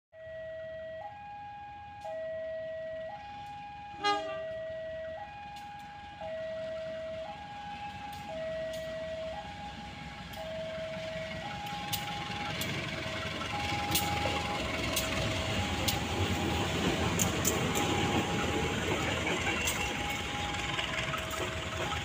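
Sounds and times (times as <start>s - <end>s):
level crossing two-tone alarm: 0.2s - 22.0s
loud honk: 4.0s - 4.5s.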